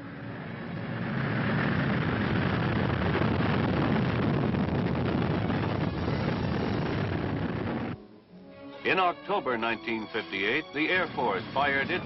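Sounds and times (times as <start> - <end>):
rocket engine roaring: 0.0 - 8.0.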